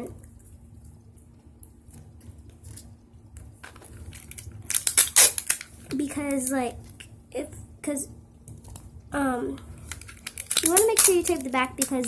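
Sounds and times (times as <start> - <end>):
faint handling sounds: 0.2 - 7.1, 9.5 - 12.0
tape ripping off roll: 4.1 - 5.7.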